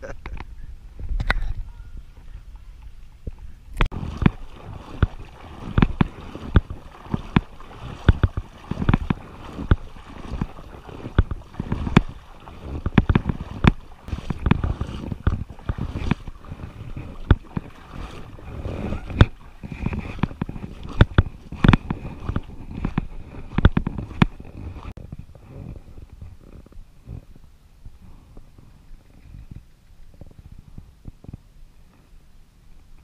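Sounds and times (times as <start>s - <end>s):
footsteps on grass: 2.1s - 25.0s.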